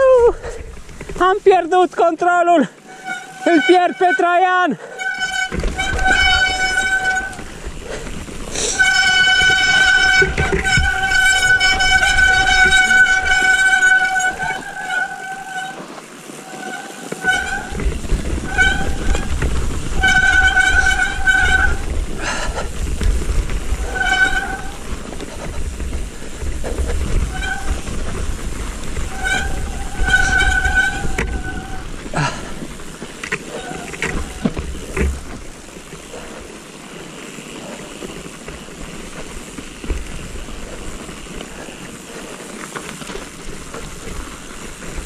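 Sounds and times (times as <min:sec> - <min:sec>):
wind and tyres rumbling: 0:00.0 - 0:45.0
bike disc brakes squealing: 0:02.8 - 0:45.0.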